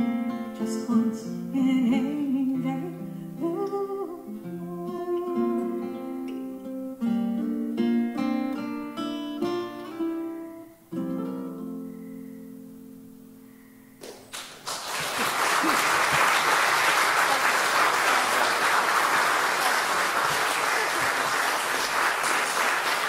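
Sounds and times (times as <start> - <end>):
audience applause: 14.3 - 23.0.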